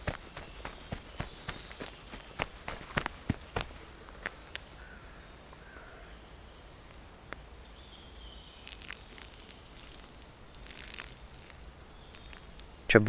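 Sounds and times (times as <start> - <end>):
faint bird chirps: 0.0 - 13.0
water pouring from plastic bottle: 8.6 - 12.8
water splashing on ground: 8.6 - 12.8.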